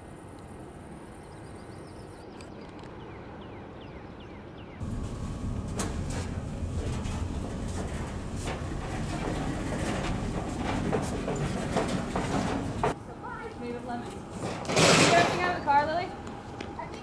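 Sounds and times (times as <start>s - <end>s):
bird chirping: 1.1s - 4.9s
footsteps in hallway: 4.8s - 13.0s
low outdoor rumble: 4.8s - 14.6s.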